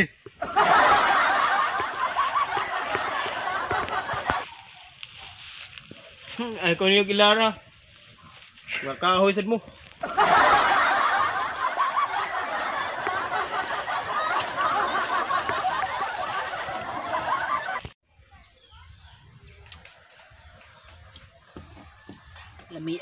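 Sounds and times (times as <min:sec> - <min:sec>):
canned laughter: 0:00.4 - 0:04.5, 0:10.0 - 0:17.9.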